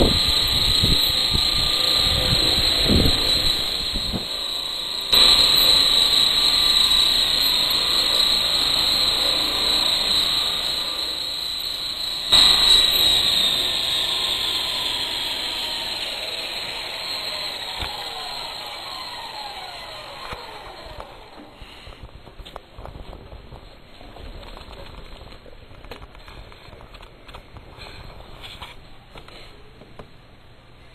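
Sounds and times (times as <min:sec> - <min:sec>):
rc helicopter motor and rotor whining: 0:00.0 - 0:22.1.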